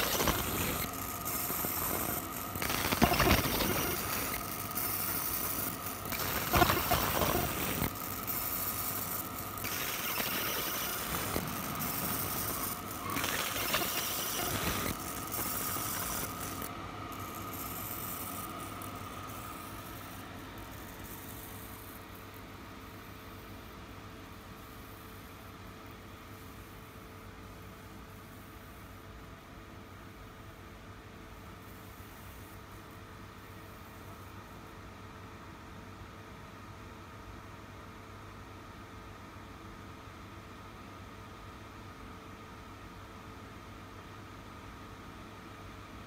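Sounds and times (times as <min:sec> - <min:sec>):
laser engraving hiss: 0:00.0 - 0:23.4
machine hum: 0:00.0 - 0:23.7.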